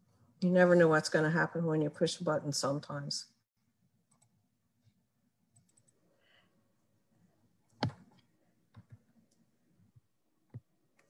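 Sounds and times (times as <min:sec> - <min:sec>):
computer mouse clicks: 0:05.5 - 0:06.0.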